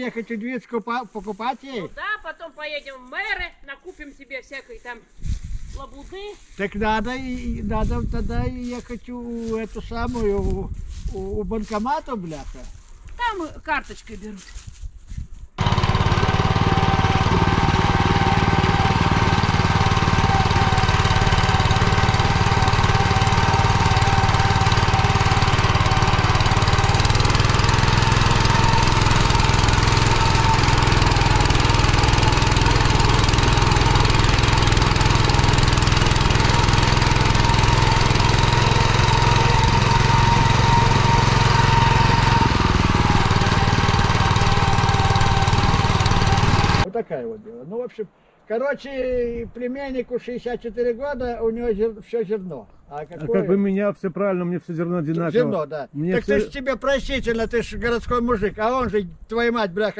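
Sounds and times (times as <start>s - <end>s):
petrol engine running under load: 15.6s - 46.9s.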